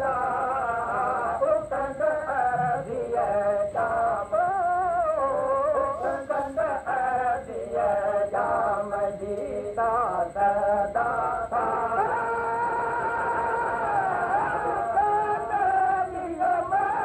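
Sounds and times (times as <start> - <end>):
person singing devotional song: 0.0 - 17.0.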